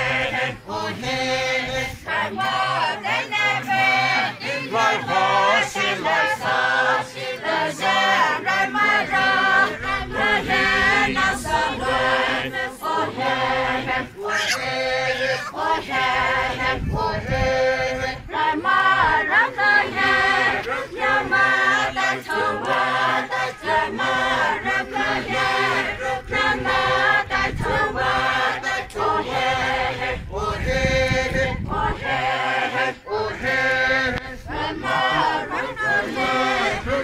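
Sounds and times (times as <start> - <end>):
group chanting in unison: 0.0 - 37.0.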